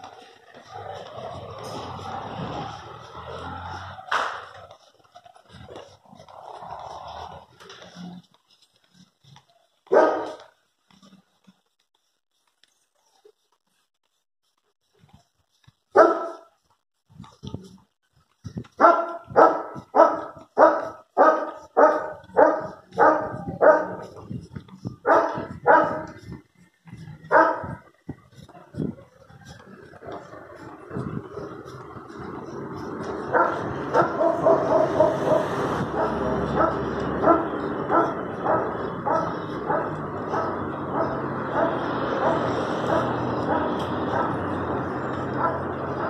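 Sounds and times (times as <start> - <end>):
dog barking: 9.9 - 10.5, 16.0 - 16.5, 18.8 - 24.1, 25.0 - 26.2, 27.2 - 27.8, 33.3 - 44.7, 45.3 - 46.0.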